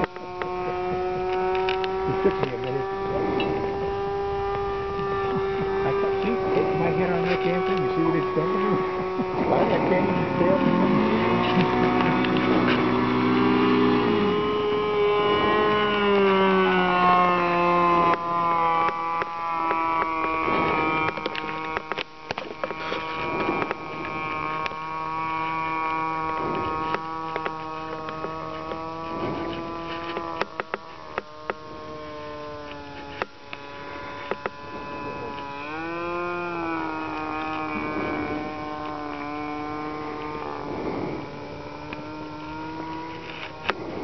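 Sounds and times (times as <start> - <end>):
sharp clicks: 0.0 - 2.8, 15.6 - 24.8, 25.4 - 35.8
model airplane engine buzzing: 0.0 - 44.0.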